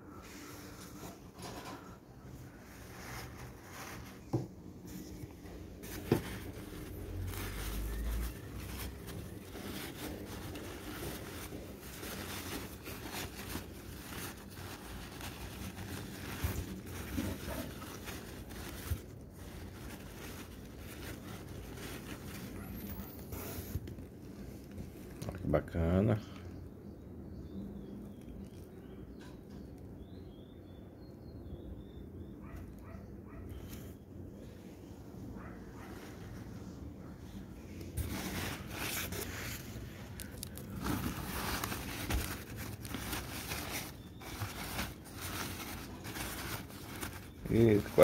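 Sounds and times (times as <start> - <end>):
packing paper rustling and crinkling: 0.2 - 25.4, 37.3 - 48.0.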